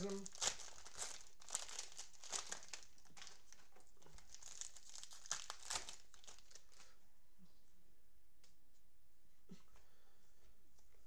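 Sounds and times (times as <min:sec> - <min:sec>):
plastic wrapper crinkling: 0:00.0 - 0:07.0.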